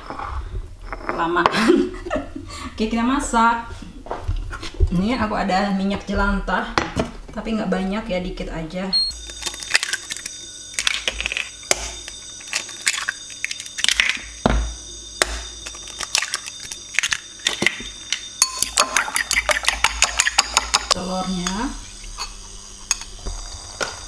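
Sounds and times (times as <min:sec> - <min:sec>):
eggs cracking on ceramic bowl: 0:09.3 - 0:14.6, 0:15.2 - 0:21.0
whisk beating eggs in bowl: 0:15.2 - 0:23.1.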